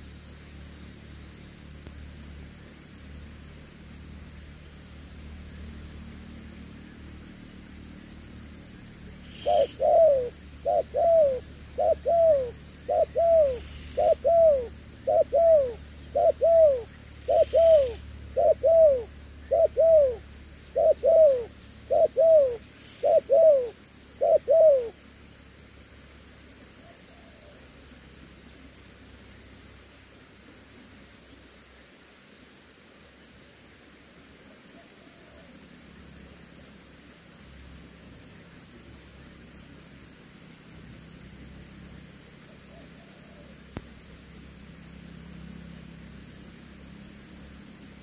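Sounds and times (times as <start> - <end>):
dove cooing: 9.3 - 25.0, 42.7 - 43.5.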